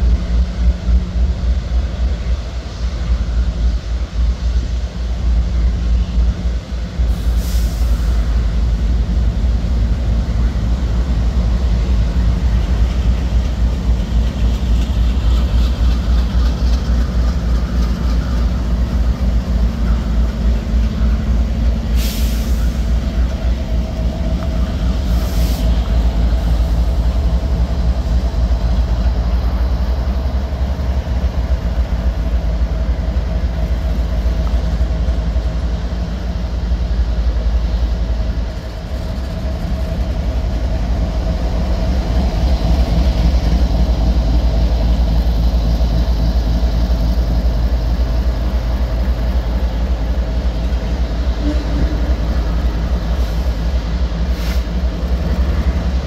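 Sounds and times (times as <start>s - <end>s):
diesel locomotives rumbling: 0.0s - 56.0s
brief hisses: 21.9s - 22.9s, 54.3s - 54.8s.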